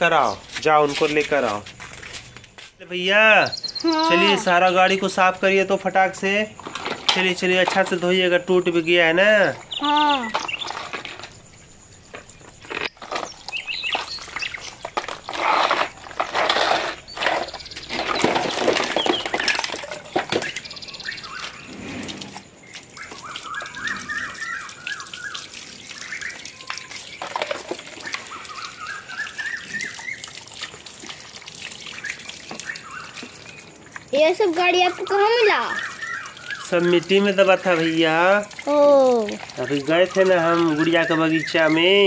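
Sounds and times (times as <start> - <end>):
hose water splashing on toys: 0.0 - 42.0
bird singing rising notes: 20.4 - 22.3, 22.9 - 26.8, 34.9 - 37.0.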